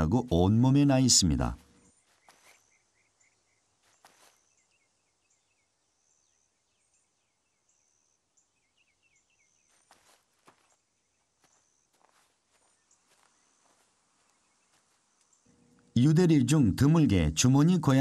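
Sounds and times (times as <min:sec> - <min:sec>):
faint bird chirps: 0:01.0 - 0:16.5
soft rustles: 0:01.6 - 0:02.8, 0:03.8 - 0:04.8, 0:09.6 - 0:15.9.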